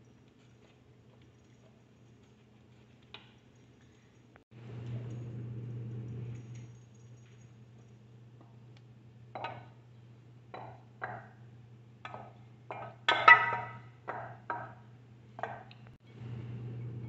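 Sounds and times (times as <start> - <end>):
pan knocking against ceramic bowls: 9.4 - 9.8, 10.6 - 11.4, 12.0 - 14.8.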